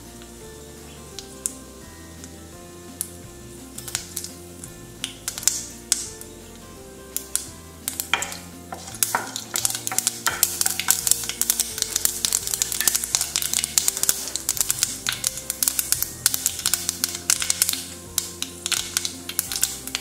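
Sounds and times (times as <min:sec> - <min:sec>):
mustard seeds popping in oil: 0:00.0 - 0:20.0
wooden spatula stirring: 0:07.2 - 0:20.0.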